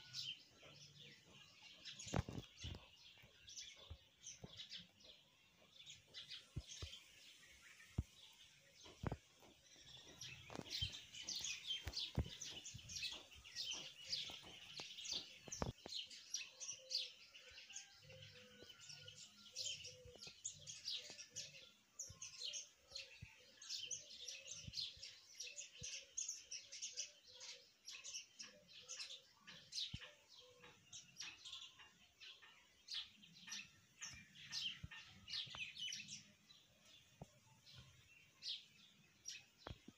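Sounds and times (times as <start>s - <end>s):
birds chirping: 0.0s - 39.9s.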